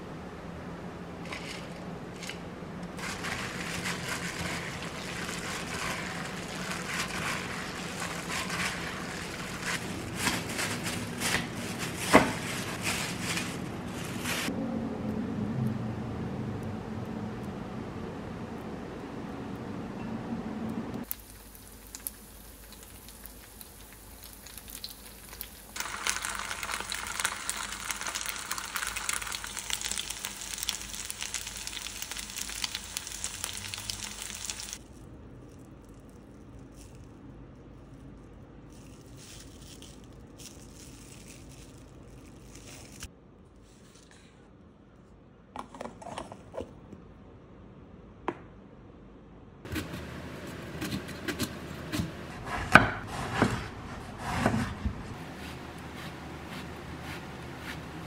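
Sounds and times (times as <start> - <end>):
cling film crinkling: 3.0 - 14.5, 21.1 - 34.8, 38.8 - 43.1
meat patties sizzling in oil: 21.0 - 34.8.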